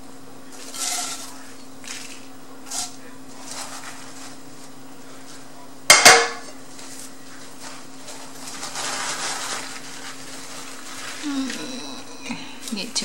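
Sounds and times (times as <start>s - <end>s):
steady low hum: 0.0s - 13.0s
paper towel rustling: 0.5s - 5.5s, 6.6s - 11.8s.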